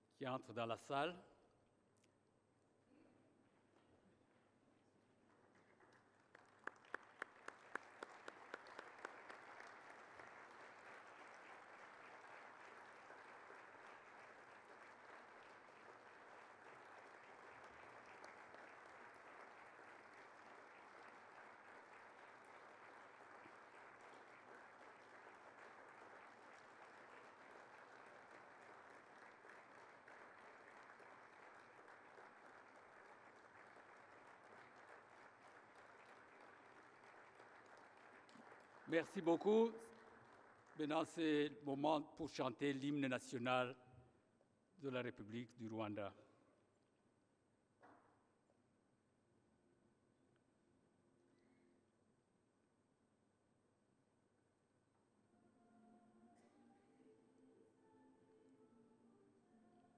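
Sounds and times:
audience applauding: 0:05.3 - 0:41.5.

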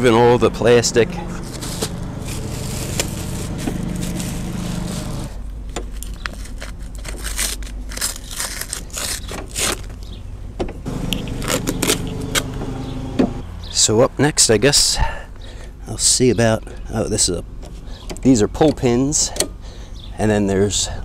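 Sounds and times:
distant lawn mower engine: 0:00.0 - 0:05.5, 0:10.8 - 0:14.6
plastic film crinkling: 0:01.4 - 0:10.1, 0:10.9 - 0:12.6.

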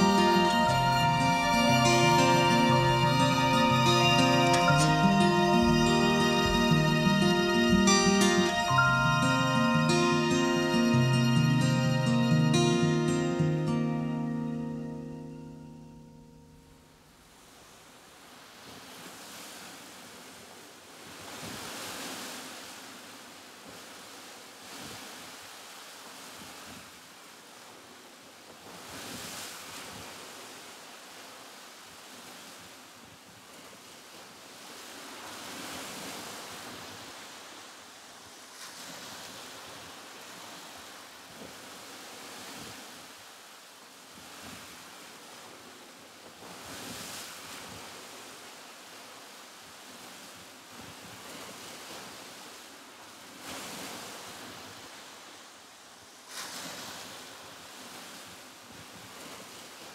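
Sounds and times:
sea waves washing in: 0:00.0 - 0:16.5, 0:28.6 - 0:59.9.

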